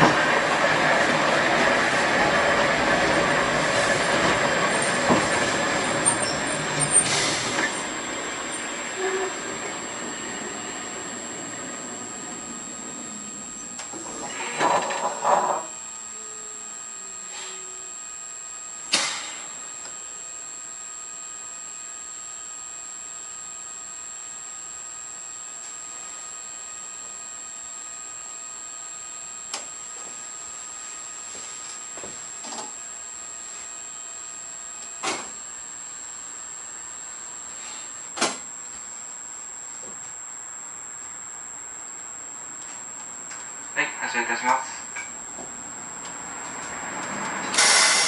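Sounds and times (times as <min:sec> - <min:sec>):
tram braking with wheel squeal: 0:00.0 - 0:15.6, 0:47.4 - 0:48.0.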